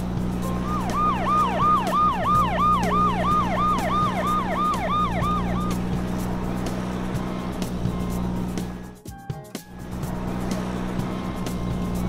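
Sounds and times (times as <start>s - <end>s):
siren yelp: 0.4s - 5.8s.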